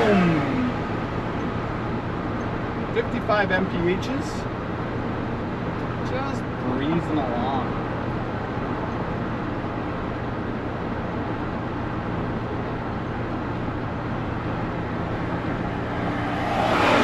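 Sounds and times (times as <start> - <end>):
road noise: 0.0 - 17.0
truck engine hum: 0.0 - 17.0.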